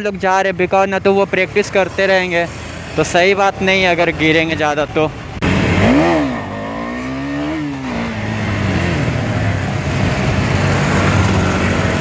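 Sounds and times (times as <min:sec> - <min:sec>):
motorcycle engine accelerating: 0:05.3 - 0:12.0.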